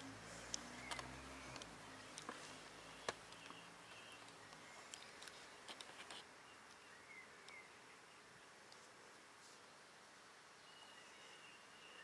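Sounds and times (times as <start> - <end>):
soft clicks: 0.5 - 2.4
faint high chirps: 10.6 - 12.0.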